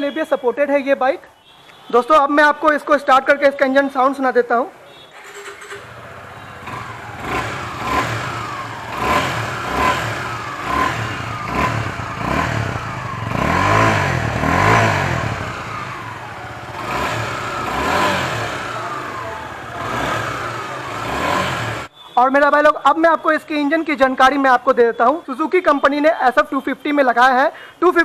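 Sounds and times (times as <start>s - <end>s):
motorcycle engine revving: 5.2s - 21.9s.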